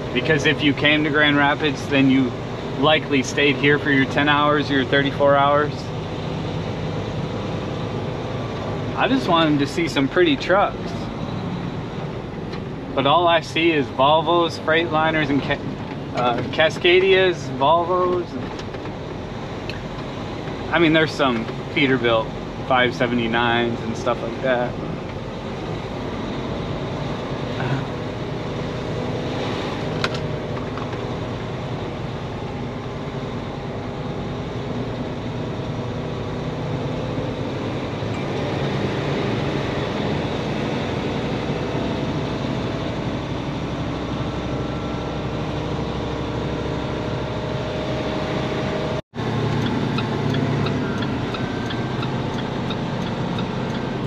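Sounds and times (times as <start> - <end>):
diesel truck engine running: 0.0 - 54.0
road noise: 0.0 - 54.0.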